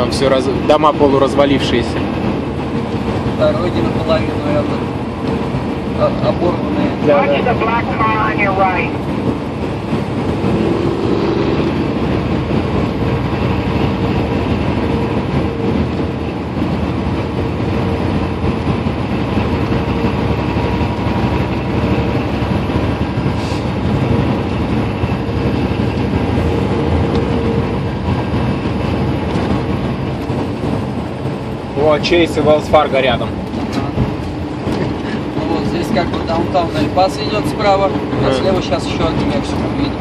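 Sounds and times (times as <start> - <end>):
truck engine drone: 0.0 - 40.0
tyre and road rumble: 8.1 - 40.0.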